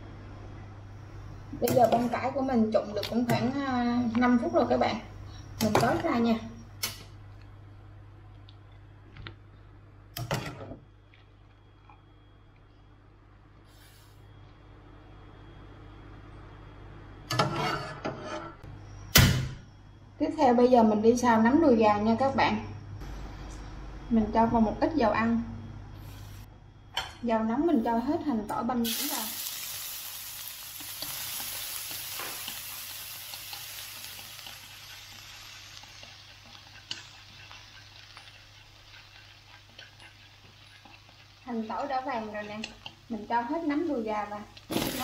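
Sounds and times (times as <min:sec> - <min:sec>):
low steady hum: 0:00.0 - 0:45.0
shallot and garlic sizzling in oil: 0:01.5 - 0:07.0, 0:28.6 - 0:45.0
metal cookware clattering and scraping: 0:17.3 - 0:18.6.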